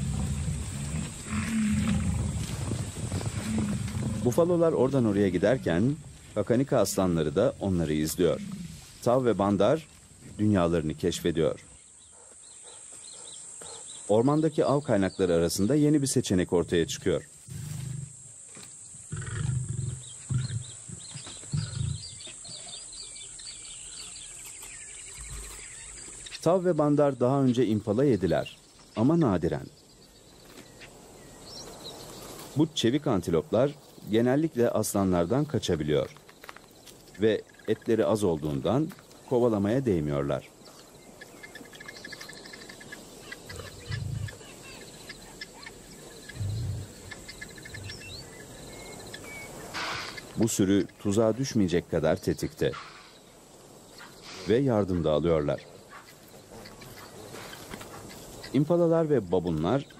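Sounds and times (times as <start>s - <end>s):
lions grunting: 0.0s - 9.0s, 17.5s - 18.2s, 19.0s - 22.8s, 43.5s - 44.6s, 46.0s - 47.3s
high insect drone: 0.0s - 28.9s
birds chirping: 0.0s - 59.9s.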